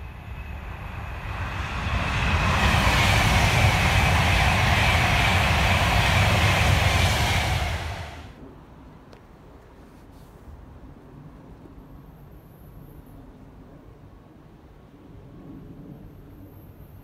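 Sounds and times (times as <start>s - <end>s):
train passing at speed: 0.0s - 8.4s.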